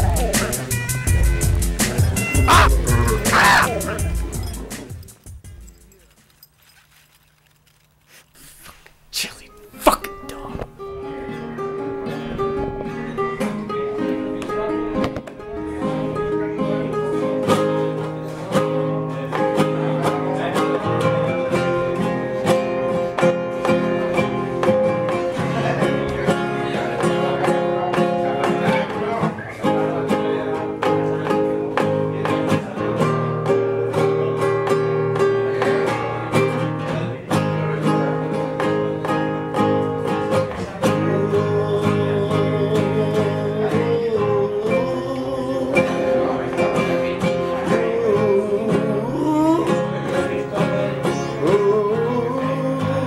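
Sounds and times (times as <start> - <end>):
person singing: 0.0 - 4.7, 40.5 - 53.0
acoustic guitar picking: 0.0 - 53.0.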